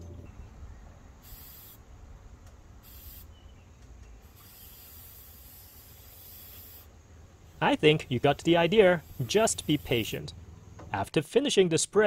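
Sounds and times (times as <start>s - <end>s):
aerosol can spraying: 1.2s - 1.8s, 2.8s - 3.3s, 4.2s - 6.9s, 9.0s - 10.0s.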